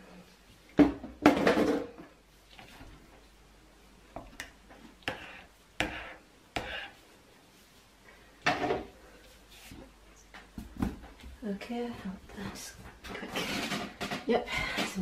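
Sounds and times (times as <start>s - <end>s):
plastic items knocking on worktop: 0.8s - 2.0s.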